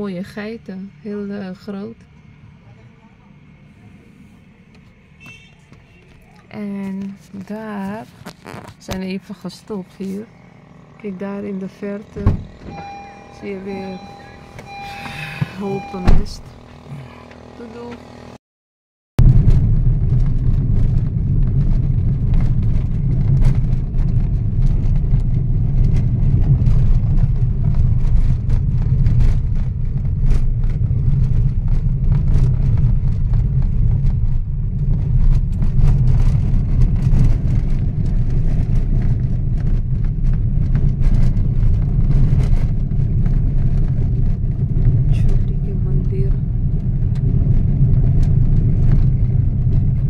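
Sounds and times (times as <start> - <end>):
car engine and tyres rumbling: 0.0 - 18.4, 19.2 - 50.0
car knocks and rattles: 11.8 - 13.2.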